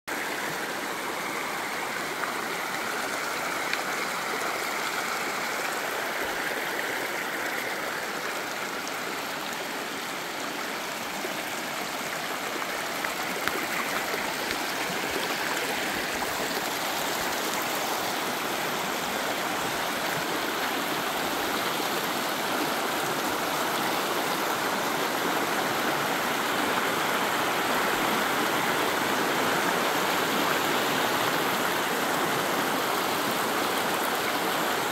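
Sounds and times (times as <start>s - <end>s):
stream babbling over rocks: 0.1s - 34.9s.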